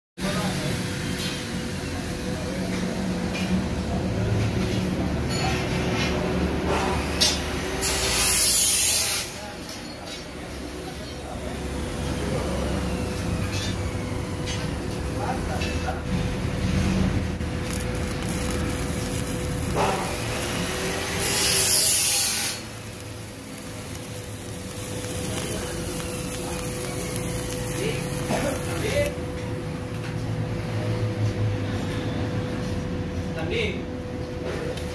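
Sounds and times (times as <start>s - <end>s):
arc welding crackling hiss: 6.7s - 13.8s, 16.7s - 29.2s.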